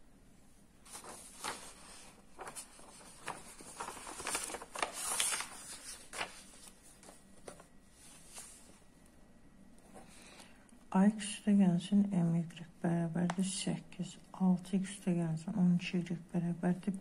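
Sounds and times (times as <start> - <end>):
paper sheets rustling: 0.8 - 8.8.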